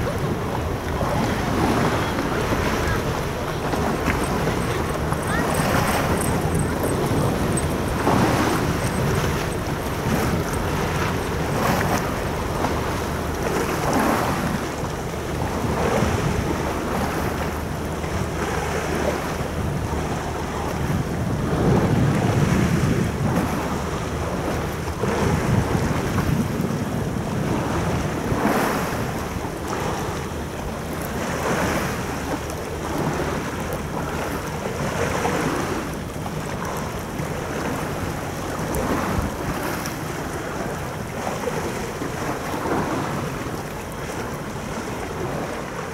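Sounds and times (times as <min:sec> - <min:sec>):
harbour water washing: 0:00.0 - 0:45.9
wind buffeting microphone: 0:00.0 - 0:45.9.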